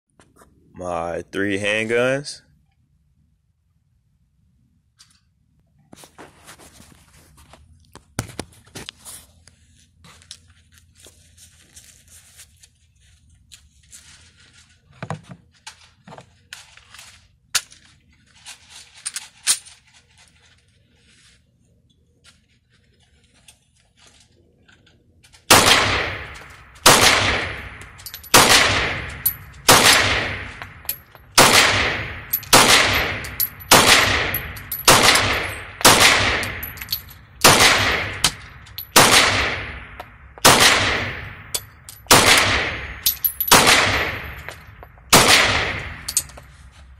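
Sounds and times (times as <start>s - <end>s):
pistol and magazines clicking: 24.7s - 46.5s
reverberant pistol shots: 25.5s - 36.7s, 37.4s - 41.5s, 42.1s - 44.4s, 45.1s - 46.1s.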